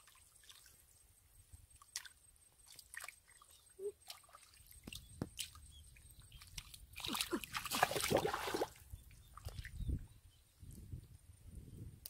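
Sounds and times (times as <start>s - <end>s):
hands squelching in wet mud: 6.3s - 8.8s.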